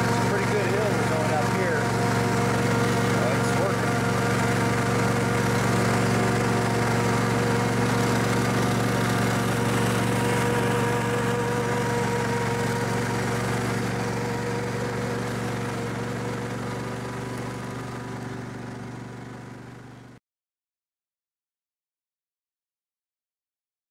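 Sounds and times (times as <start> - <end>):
riding lawn mower engine running: 0.0 - 20.2.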